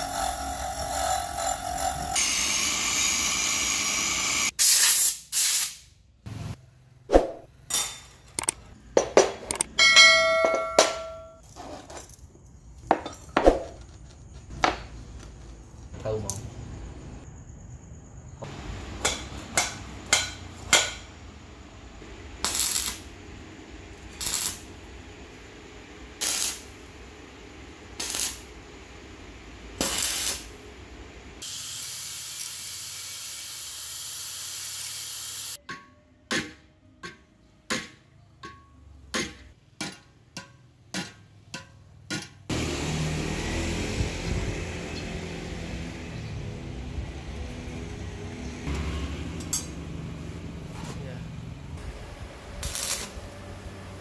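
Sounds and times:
angle grinder cutting steel: 0.0s - 4.5s
sharp ringing metal clinks: 9.8s - 11.4s.

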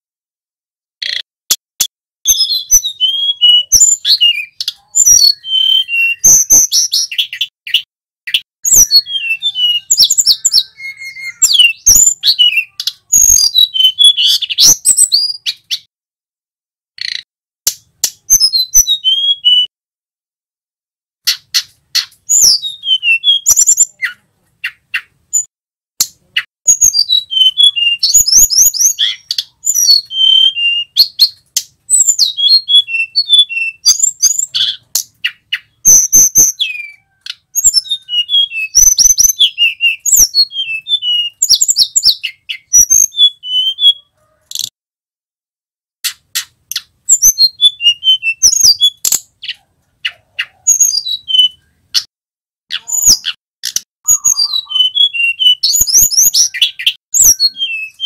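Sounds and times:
bird singing whistled phrases: 2.2s - 15.9s, 18.0s - 19.7s, 21.3s - 25.5s, 26.7s - 44.2s, 46.7s - 52.1s, 52.7s - 53.4s, 54.0s - 58.0s
sharp bird clicks: 17.0s - 18.4s, 21.2s - 22.5s, 46.0s - 47.3s.

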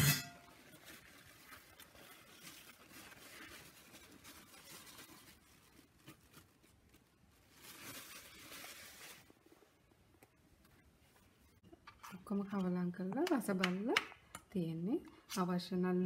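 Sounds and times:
paper towels rustling: 0.4s - 11.6s.

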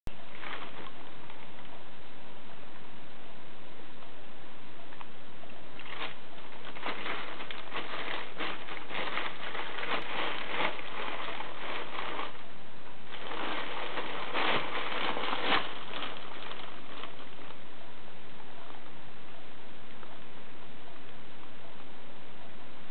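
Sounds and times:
plastic bag rustling: 0.1s - 1.7s, 5.8s - 17.6s.

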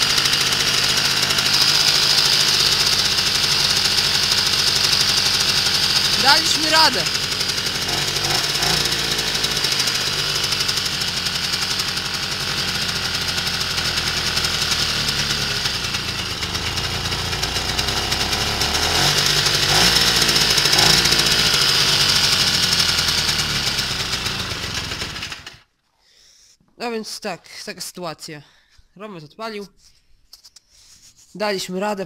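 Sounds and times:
moped engine running: 0.0s - 25.6s.

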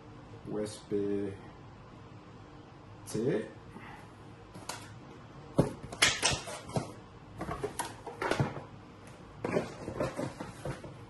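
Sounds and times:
cardboard box knocks and rustles: 9.4s - 11.0s.

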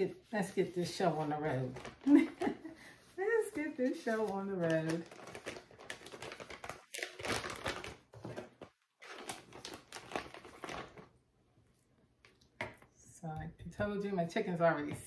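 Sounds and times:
plastic bag crinkling: 0.7s - 2.7s, 3.4s - 11.2s.

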